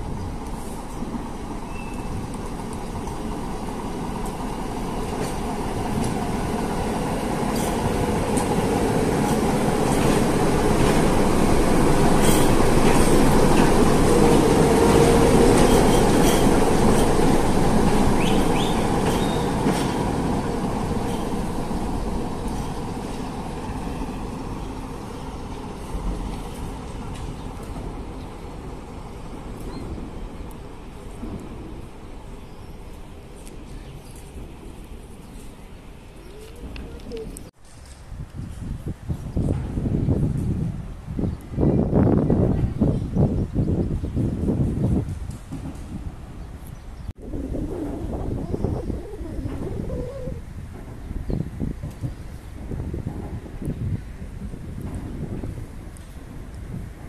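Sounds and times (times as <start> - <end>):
wheels clicking on rails: 1.8 - 32.0
diesel locomotive engine running: 2.5 - 27.2.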